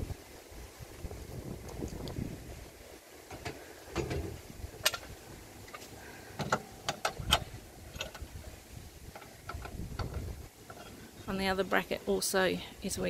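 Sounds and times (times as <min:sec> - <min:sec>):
metallic clicks and knocks: 0:06.4 - 0:08.3, 0:09.1 - 0:11.0.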